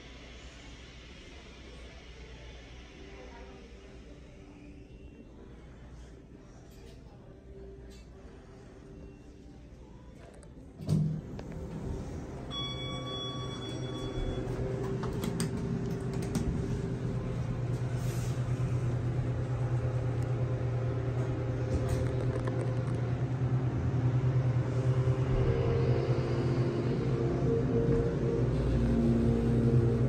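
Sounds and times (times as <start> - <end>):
hydraulic pump hum: 10.7 - 30.0
elevator chime: 11.8 - 15.3.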